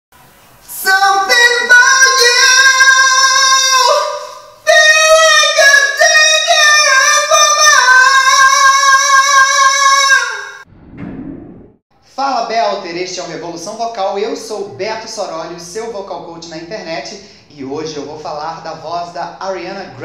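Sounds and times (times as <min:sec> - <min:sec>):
man singing a cappella: 0:00.6 - 0:10.6.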